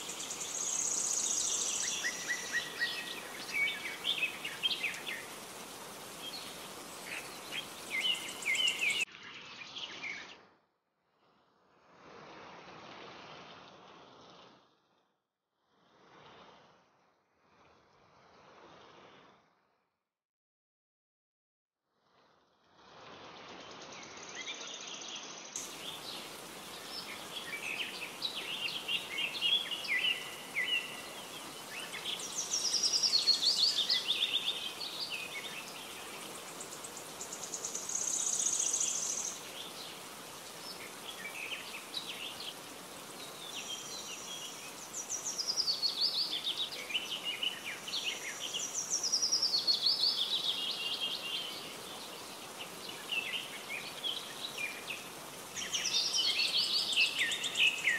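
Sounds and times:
steady background hiss: 0.0 - 9.0, 23.6 - 57.9
birds singing and chirping: 6.2 - 9.0, 55.6 - 57.9.

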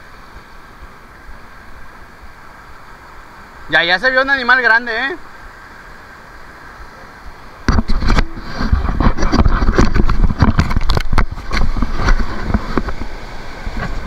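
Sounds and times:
surf foaming over rocks: 0.0 - 14.0
microphone handling crackles: 7.6 - 14.0
wind buffeting microphone: 7.6 - 14.0.

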